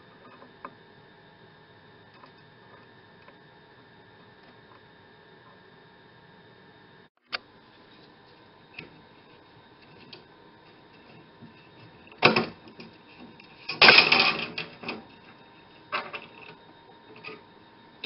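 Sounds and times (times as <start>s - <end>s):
metallic rattle: 13.6s - 15.0s.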